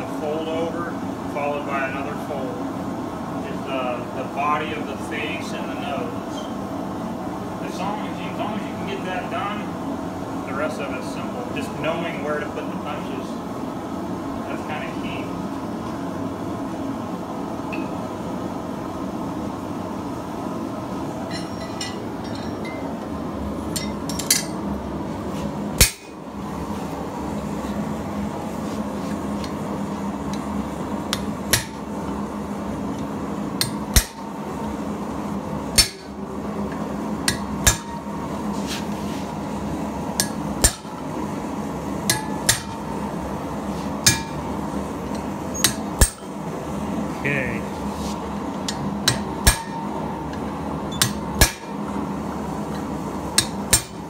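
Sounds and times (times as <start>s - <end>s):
hammer striking steel punch: 25.8s - 26.2s, 31.5s - 31.8s, 33.6s - 34.3s, 35.8s - 36.2s, 37.3s - 38.1s, 40.2s - 40.9s, 42.1s - 42.8s, 44.0s - 44.4s, 45.6s - 46.3s, 48.7s - 49.9s, 50.9s - 51.8s, 53.4s - 54.0s.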